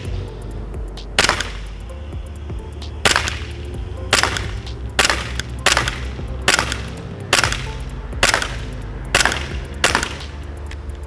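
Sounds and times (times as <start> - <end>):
pistol slide cycling: 0.0 - 11.0
airsoft pistol shots: 1.2 - 1.8, 3.0 - 10.3.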